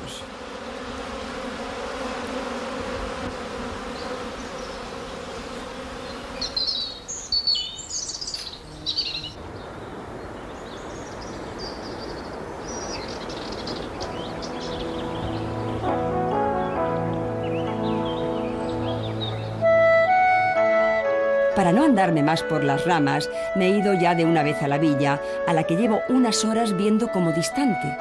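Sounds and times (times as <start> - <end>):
honeybees buzzing: 0.0 - 28.0
small birds chirping: 3.8 - 19.7.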